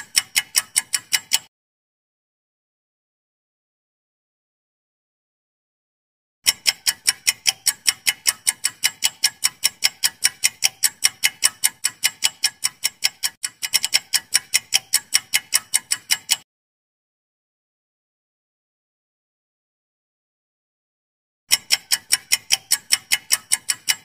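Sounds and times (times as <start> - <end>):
rapid clock ticking: 0.0 - 1.5, 6.4 - 16.4, 21.5 - 24.0.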